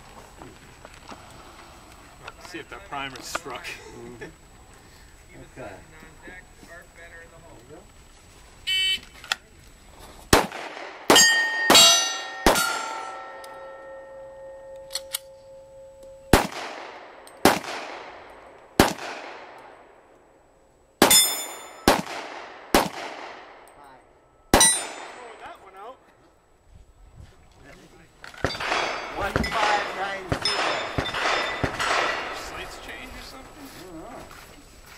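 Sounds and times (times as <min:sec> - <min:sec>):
handgun shots: 0:10.3 - 0:13.5, 0:16.3 - 0:18.1, 0:18.8 - 0:19.7, 0:21.0 - 0:23.4, 0:28.4 - 0:32.5
steel plate ringing: 0:11.1 - 0:16.3, 0:21.0 - 0:21.9, 0:24.4 - 0:25.5, 0:28.5 - 0:32.7.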